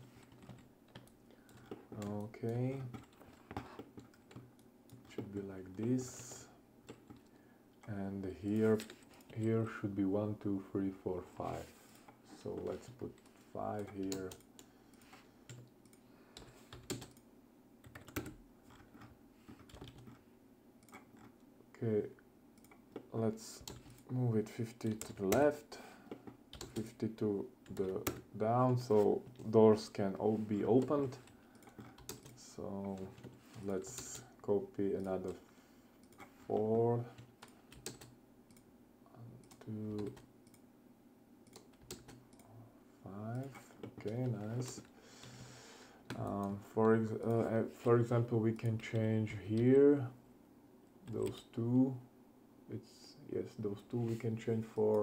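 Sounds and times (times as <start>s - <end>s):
keyboard and mouse clicks: 0.1s - 7.4s, 12.6s - 17.2s, 17.8s - 20.2s, 20.8s - 21.5s, 22.6s - 24.1s, 26.1s - 27.0s, 30.7s - 34.3s, 36.0s - 38.7s, 41.4s - 42.5s.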